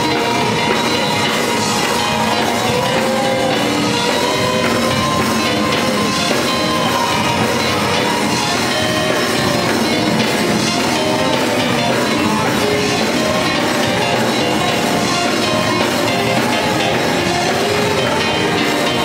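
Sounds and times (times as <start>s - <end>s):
drum kit with cymbals: 0.0s - 19.0s
electric bass guitar: 0.0s - 19.0s
keyboard: 0.0s - 19.0s.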